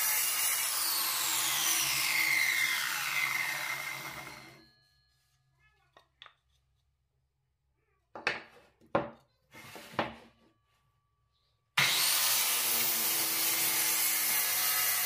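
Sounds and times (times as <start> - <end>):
circular saw running: 0.0 - 4.7, 11.8 - 15.0.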